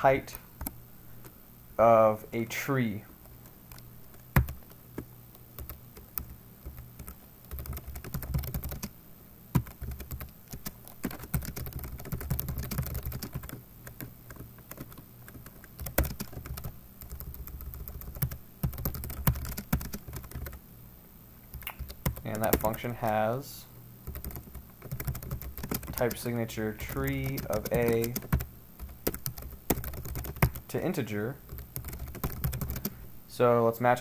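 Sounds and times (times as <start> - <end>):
typing on computer keyboard: 3.7 - 4.8, 5.6 - 8.9, 9.6 - 20.6, 21.6 - 23.2, 24.1 - 30.6, 31.5 - 32.9.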